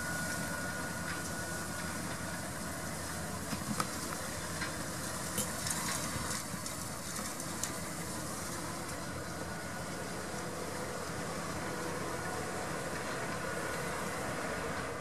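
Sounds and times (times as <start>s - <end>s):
tractor engine running: 0.0s - 15.0s.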